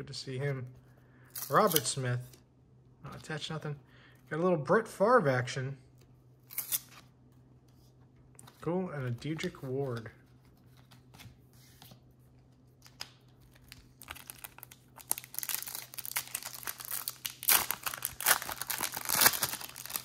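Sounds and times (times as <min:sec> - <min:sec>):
foil wrapper crinkling and tearing: 0:12.8 - 0:20.0.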